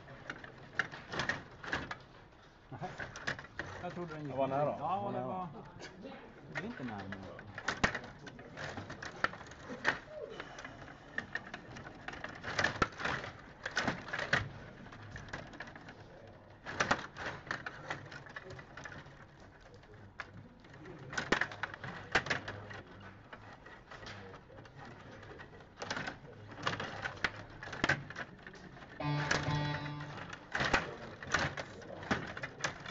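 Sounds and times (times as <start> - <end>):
plastic players clicking against puck: 6.5 - 10.1, 11.2 - 16.0, 16.6 - 29.0, 30.7 - 32.9.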